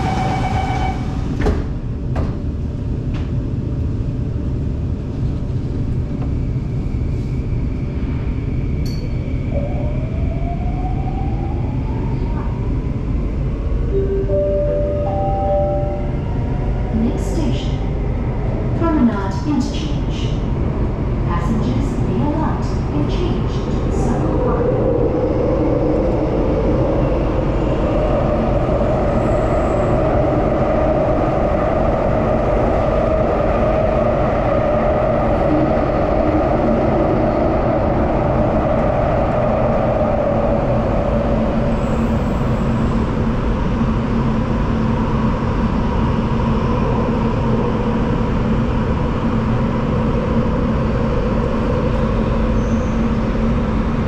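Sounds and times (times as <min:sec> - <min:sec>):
train wheels rumbling in tunnel: 0:00.0 - 0:54.0
mid-pitched drone: 0:13.9 - 0:17.1.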